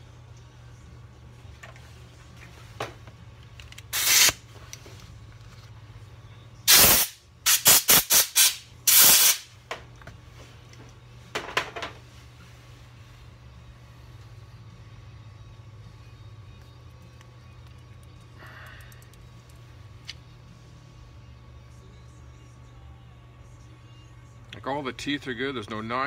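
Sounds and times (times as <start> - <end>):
hissing spray bursts: 6.7 - 9.5.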